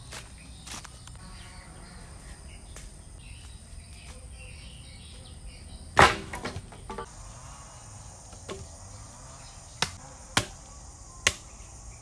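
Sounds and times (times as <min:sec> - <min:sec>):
footsteps on dry leaves: 0:00.0 - 0:05.2
high insect drone: 0:00.0 - 0:05.9, 0:06.7 - 0:12.0.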